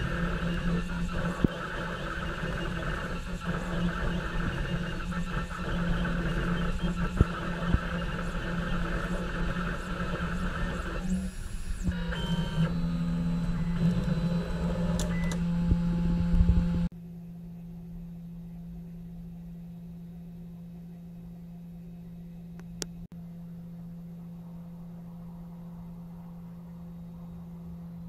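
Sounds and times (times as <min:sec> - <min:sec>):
stepper motors whining: 0:00.0 - 0:16.9.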